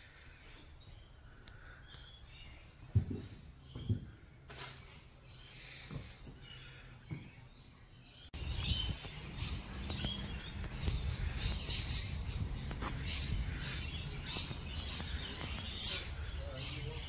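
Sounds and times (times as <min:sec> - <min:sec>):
small birds chirping: 0:00.0 - 0:17.0
steady low rumble: 0:08.4 - 0:17.0.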